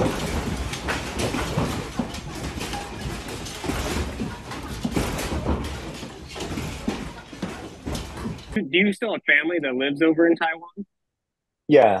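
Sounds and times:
light fixtures rattling: 0.0s - 8.6s.

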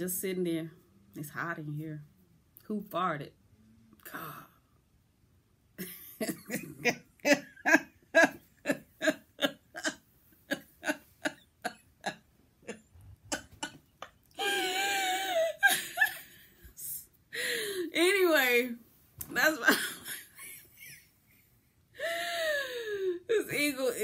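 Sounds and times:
woman laughing: 5.8s - 17.8s, 19.4s - 21.0s.

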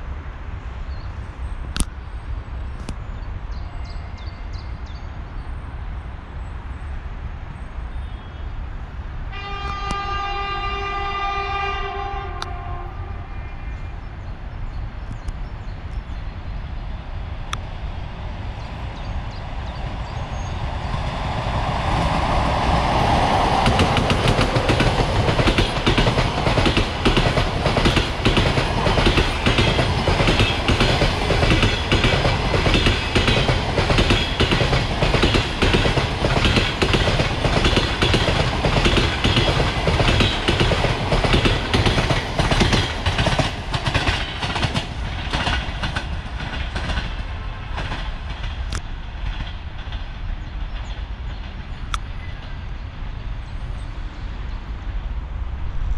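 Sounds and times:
train wheels clattering over rail joints: 23.5s - 51.8s.

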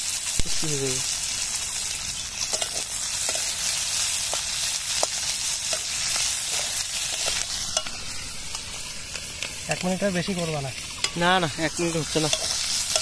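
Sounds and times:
onions sizzling in hot oil: 0.0s - 13.0s
metal spatula scraping pan: 12.2s - 13.0s.

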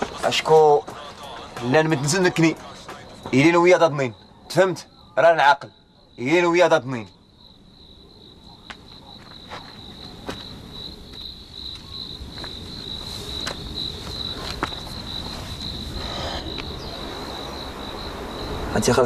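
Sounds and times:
insect trilling: 4.0s - 19.0s.

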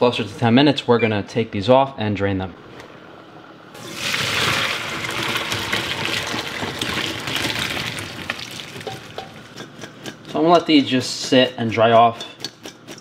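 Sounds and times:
water pouring into a metal colander: 3.8s - 8.9s.

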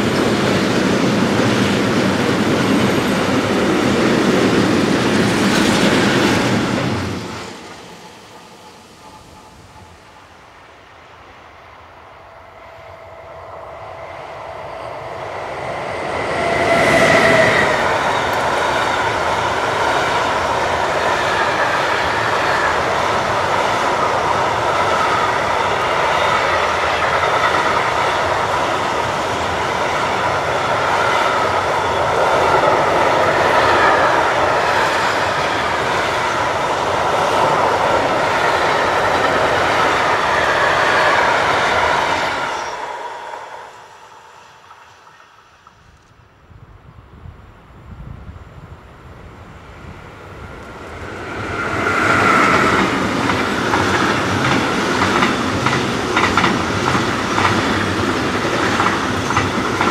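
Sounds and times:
freight train wheels rattling on rails: 0.0s - 10.9s, 12.2s - 46.1s, 50.2s - 59.9s
electric locomotive whine: 0.0s - 59.9s.

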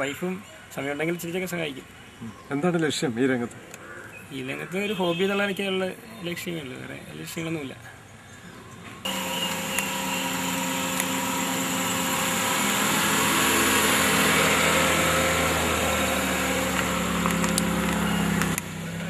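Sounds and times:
car engine running: 9.1s - 19.0s.

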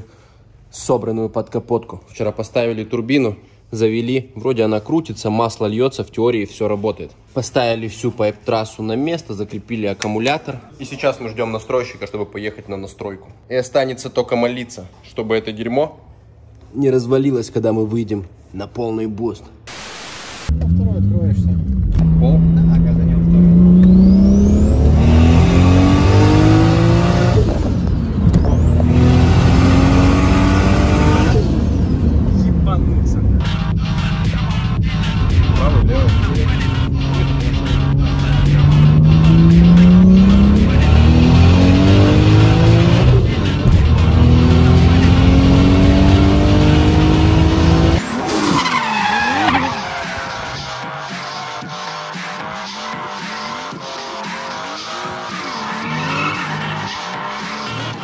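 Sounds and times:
car engine revving at full throttle: 19.7s - 48.0s
tyres squealing: 48.0s - 50.7s, 55.3s - 57.1s.

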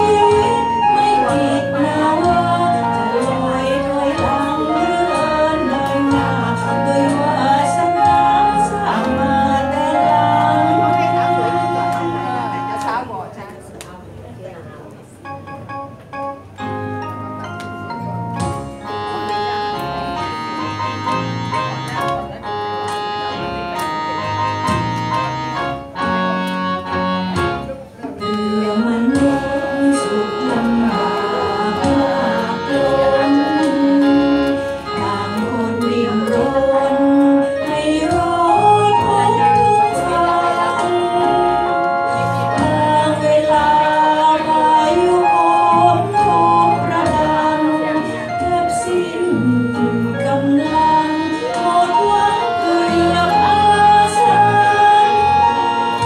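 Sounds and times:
woman singing into a microphone: 0.0s - 13.1s, 28.2s - 56.0s
karaoke backing track with keyboard: 0.0s - 56.0s.

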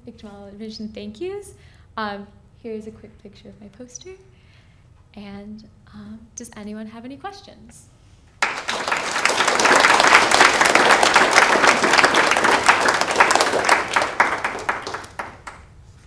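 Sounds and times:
audience applauding: 8.4s - 15.7s.

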